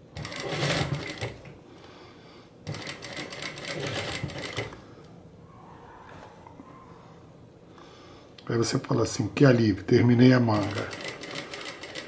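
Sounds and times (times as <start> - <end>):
sewing machine stitching: 0.1 - 1.5, 2.7 - 4.8, 10.5 - 12.0.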